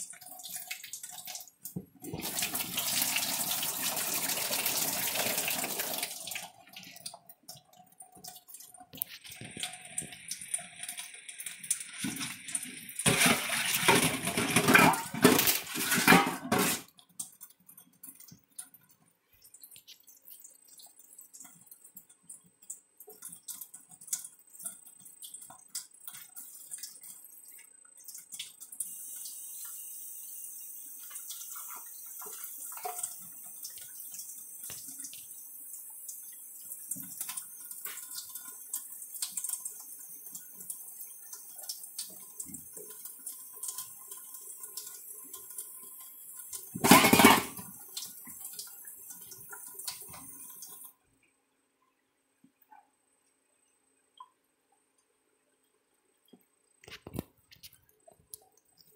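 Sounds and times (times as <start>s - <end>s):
faucet running into steel sink: 0.0s - 14.6s, 23.0s - 50.9s.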